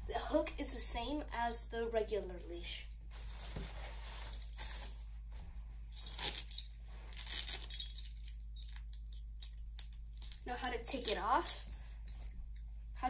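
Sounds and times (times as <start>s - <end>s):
metal leash hardware jingling: 7.6s - 12.4s.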